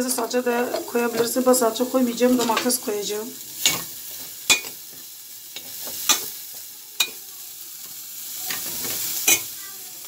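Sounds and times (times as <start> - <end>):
meat sizzling in oil: 0.0 - 10.0
spoon clinking against metal pot: 4.5 - 4.8.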